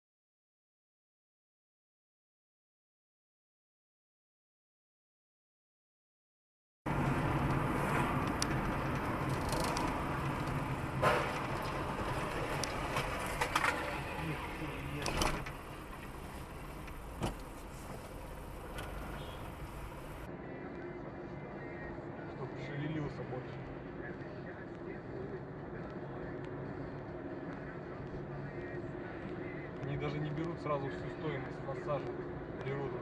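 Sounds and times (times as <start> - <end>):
road and engine noise in car: 6.9 - 33.0.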